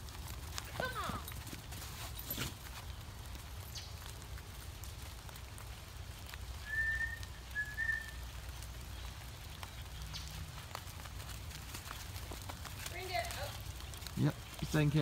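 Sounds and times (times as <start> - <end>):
person whistling short notes: 6.6 - 8.1.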